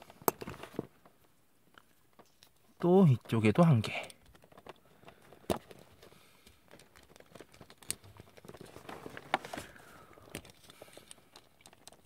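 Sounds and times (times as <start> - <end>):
plastic toy parts clicking: 3.6 - 9.3, 10.2 - 12.0.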